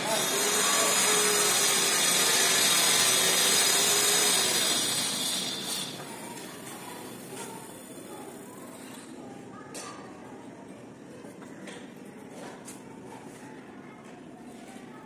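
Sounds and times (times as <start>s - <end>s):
power tool hissing: 0.0s - 6.1s.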